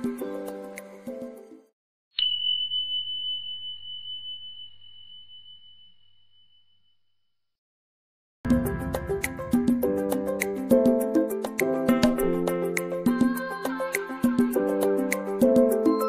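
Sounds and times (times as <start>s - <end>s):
background music: 0.0s - 1.7s, 8.5s - 16.0s
bell ding: 2.2s - 7.1s.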